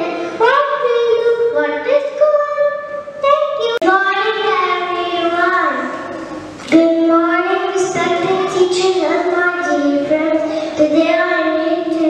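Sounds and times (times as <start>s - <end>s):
girl singing: 6.7s - 12.0s.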